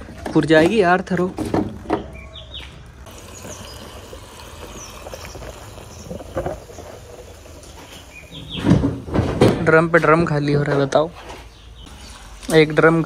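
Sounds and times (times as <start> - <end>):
fuel trickling through a hose: 3.0 - 8.7.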